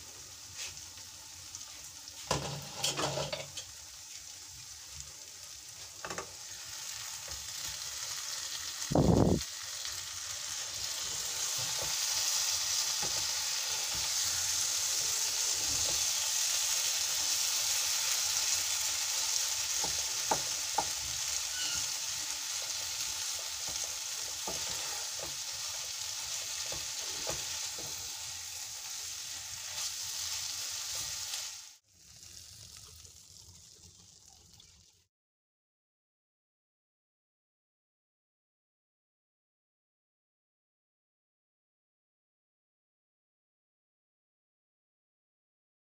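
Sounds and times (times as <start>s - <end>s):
faint hiss: 0.0s - 2.4s
food sizzling in a pan: 0.0s - 35.1s
spatula scraping and tapping pan: 2.2s - 3.8s, 13.0s - 14.3s, 19.8s - 28.2s.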